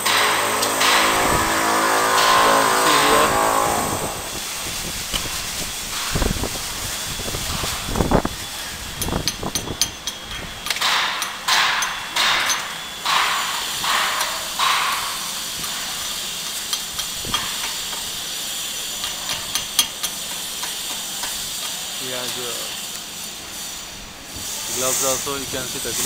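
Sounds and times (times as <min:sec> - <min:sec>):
welding arc crackling and hissing: 0:00.0 - 0:26.0.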